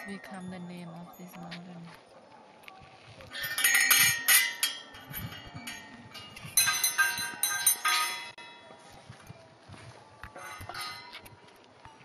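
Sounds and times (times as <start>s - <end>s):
small metal bells jangling: 3.3s - 8.8s.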